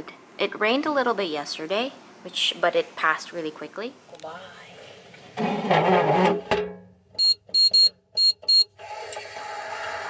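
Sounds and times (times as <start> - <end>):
short electronic beeps: 7.2 - 8.7.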